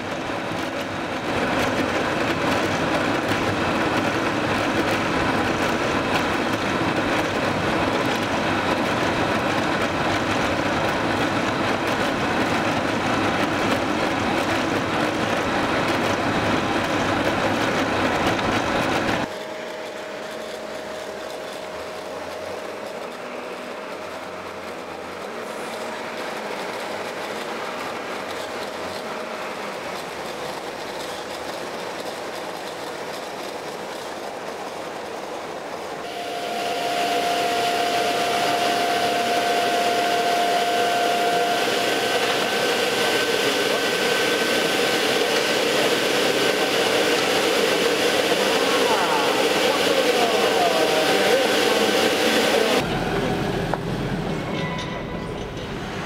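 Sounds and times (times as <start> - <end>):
heavy quarry machinery running: 47.2 - 54.5.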